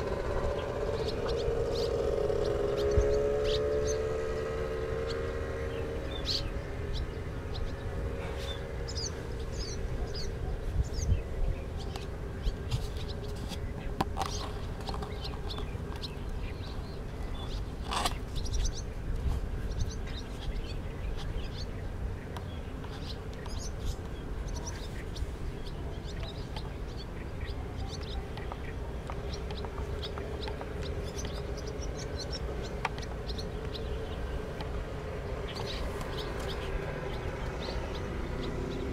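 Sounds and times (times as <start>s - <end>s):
low rumble: 0.0s - 12.7s
swallows chirping: 0.0s - 38.9s.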